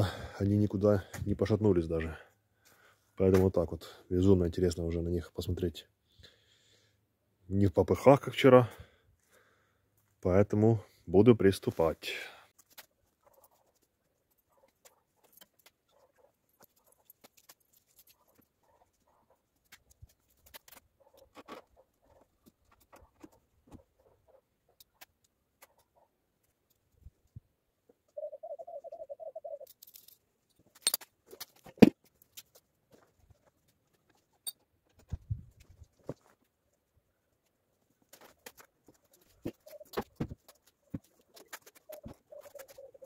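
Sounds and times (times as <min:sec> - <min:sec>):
rustling and clicking: 0:12.5 - 0:27.4, 0:29.6 - 0:43.0.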